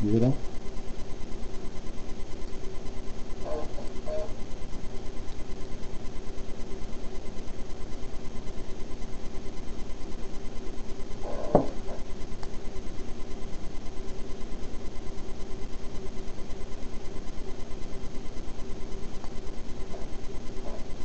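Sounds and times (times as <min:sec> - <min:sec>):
pulsing electrical hum: 0:00.0 - 0:21.0
short knock: 0:11.5 - 0:11.8.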